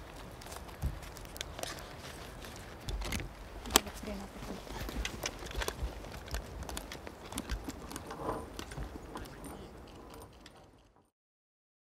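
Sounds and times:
running footsteps: 0:00.0 - 0:10.8
gear rattling and knocking: 0:04.6 - 0:11.0.

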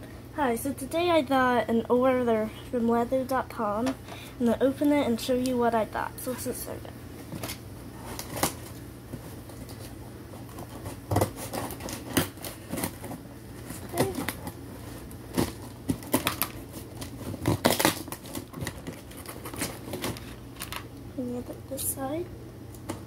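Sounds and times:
blade scraping cardboard: 0:10.4 - 0:14.2
scissors slitting packing tape: 0:15.4 - 0:20.2.

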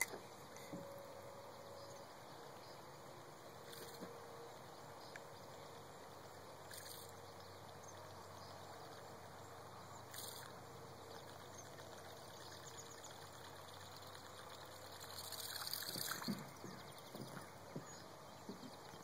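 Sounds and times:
lure blade gurgling on water: 0:11.2 - 0:17.1.

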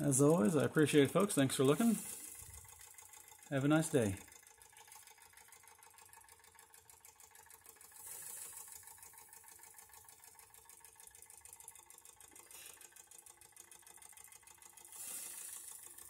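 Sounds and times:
model steam engine patter: 0:00.0 - 0:16.0
steam hiss: 0:01.8 - 0:02.3, 0:08.0 - 0:08.7, 0:14.9 - 0:15.7.

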